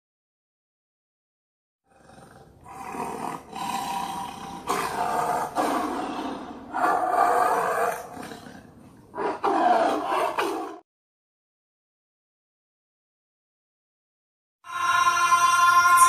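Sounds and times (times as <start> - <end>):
big cat roaring: 1.9 - 10.8.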